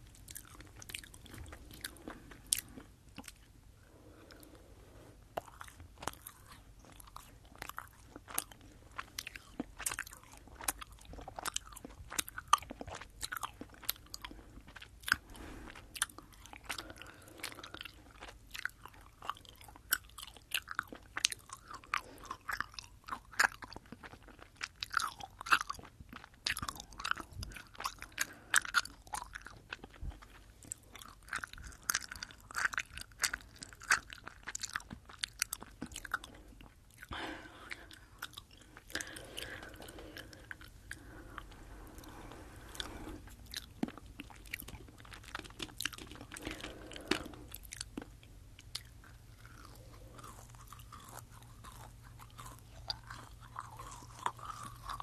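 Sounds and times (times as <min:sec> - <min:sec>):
chewing gummy candies: 0:00.0 - 0:55.0.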